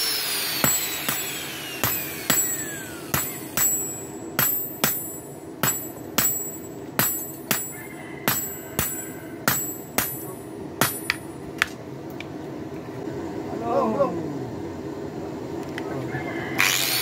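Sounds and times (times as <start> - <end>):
metallic ringing strikes: 0.0 - 11.4
low steady hum: 0.0 - 17.0.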